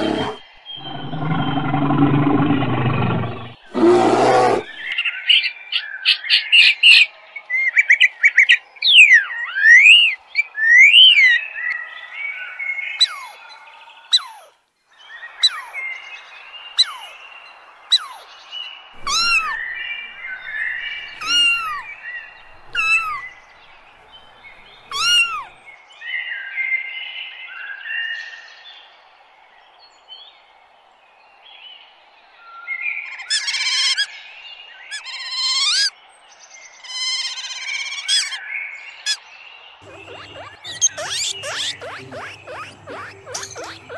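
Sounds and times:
birds singing and calling: 0.0s - 26.4s, 37.3s - 43.9s.

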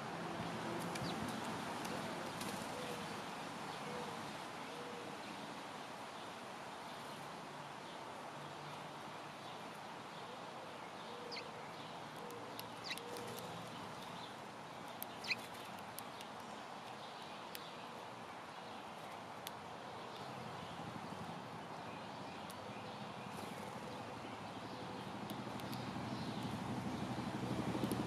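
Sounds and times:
small birds chirping: 0.9s - 4.2s, 6.2s - 28.0s
sharp ticks: 25.2s - 27.1s, 27.7s - 28.0s.

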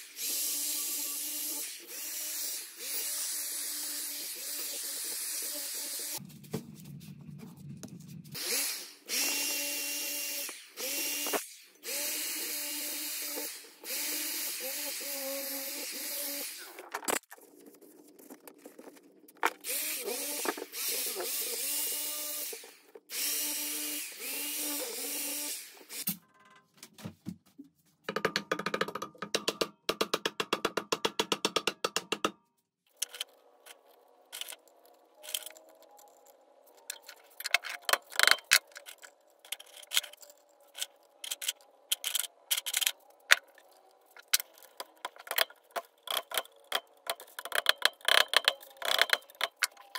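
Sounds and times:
tool clicks and taps: 28.1s - 32.4s, 44.2s - 49.9s.

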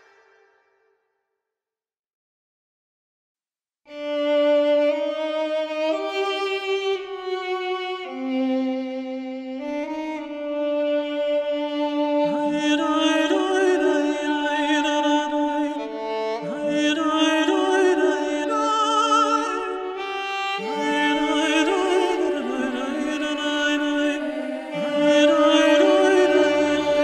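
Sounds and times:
slow melody with vibrato: 20.6s - 27.0s.

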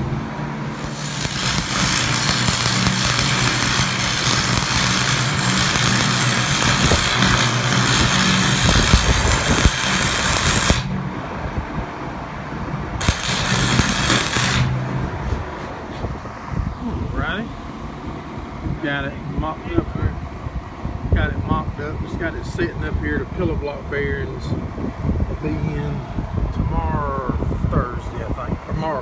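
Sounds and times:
steady engine hum: 0.0s - 29.0s
electric arc welding crackling: 0.7s - 11.0s, 13.0s - 15.0s.

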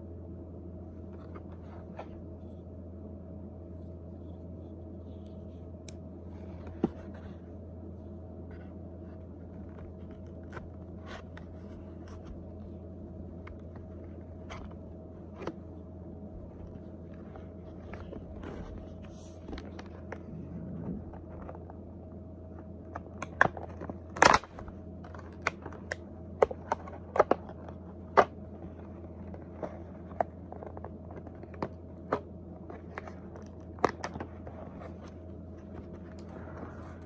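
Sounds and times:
steady low hum: 0.0s - 37.0s
package clicks and scrapes: 22.9s - 28.4s.

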